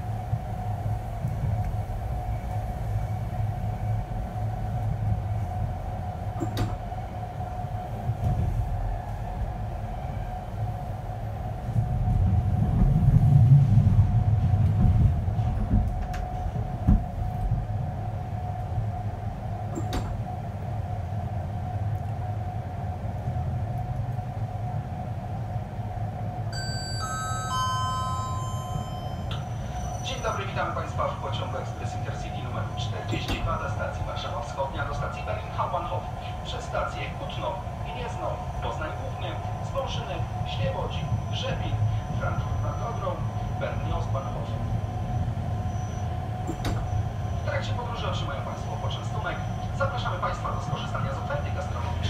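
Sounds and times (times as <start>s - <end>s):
train wheels rumbling on track: 0.0s - 52.0s
descending announcement chime: 26.6s - 33.0s.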